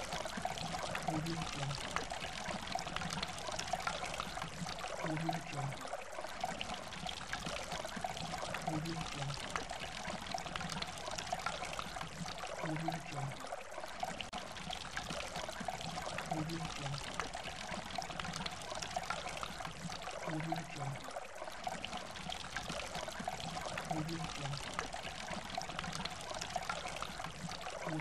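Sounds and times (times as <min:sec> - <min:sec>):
stream rushing over rocks: 0:00.0 - 0:07.7.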